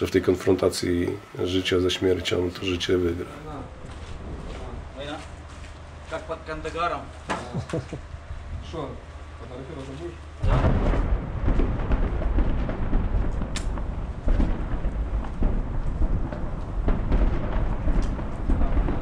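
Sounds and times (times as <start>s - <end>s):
continuous low rumble: 0.0s - 19.0s
explosions: 10.4s - 19.0s
gunfire: 10.4s - 19.0s.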